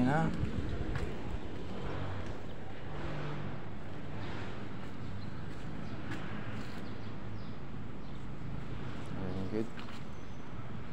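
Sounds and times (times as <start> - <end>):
street background noise: 0.0 - 10.9.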